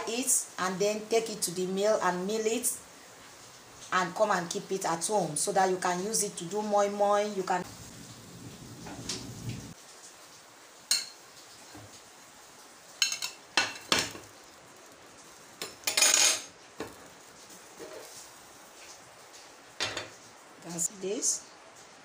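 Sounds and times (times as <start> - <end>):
metal spatula clinking on plate and pan: 10.9 - 11.2, 13.0 - 14.2, 15.6 - 16.5.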